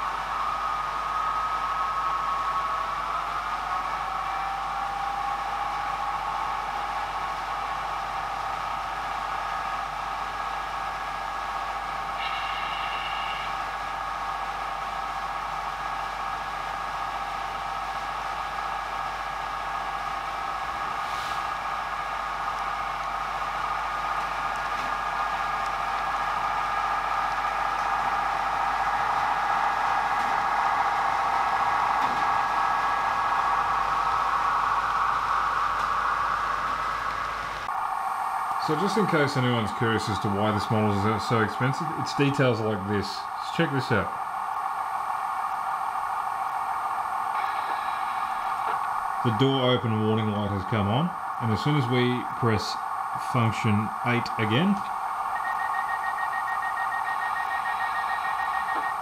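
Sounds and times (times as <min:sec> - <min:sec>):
model train engine drone: 0:00.0 - 0:59.0.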